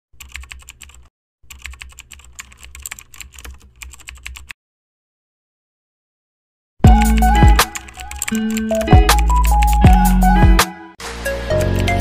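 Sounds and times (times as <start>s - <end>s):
keyboard keys clicking: 0.2s - 4.5s, 6.9s - 10.2s, 11.6s - 12.0s
loud intro music: 6.9s - 12.0s.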